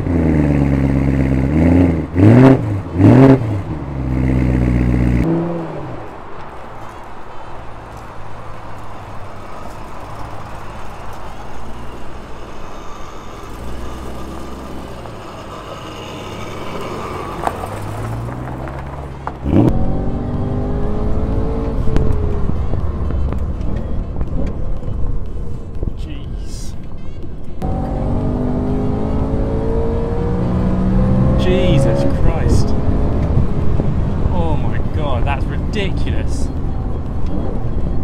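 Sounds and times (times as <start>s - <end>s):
car engine revving: 0.0s - 6.2s, 10.0s - 25.2s, 27.6s - 35.7s.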